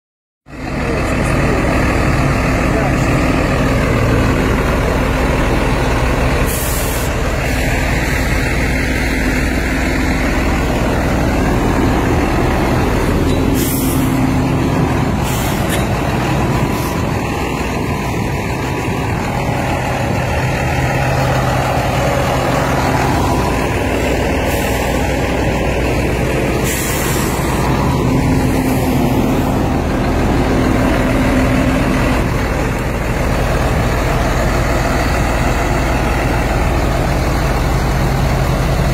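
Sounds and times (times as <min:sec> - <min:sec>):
tractor diesel engine running: 0:00.4 - 0:38.9.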